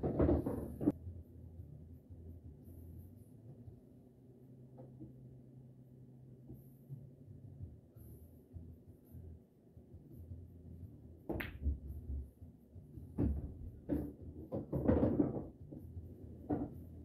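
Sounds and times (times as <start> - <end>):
pool balls knocking cushions: 0.0 - 0.9, 13.0 - 16.9
ball dropping into pocket: 11.3 - 11.9.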